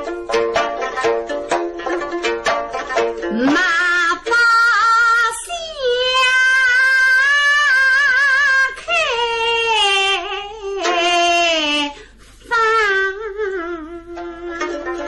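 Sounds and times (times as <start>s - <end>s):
woman singing slow melody: 3.3s - 15.0s.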